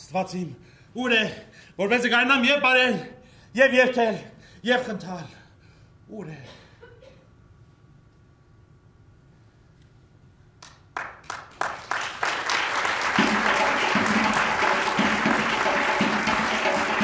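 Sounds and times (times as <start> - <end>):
audience applauding: 10.7 - 17.0.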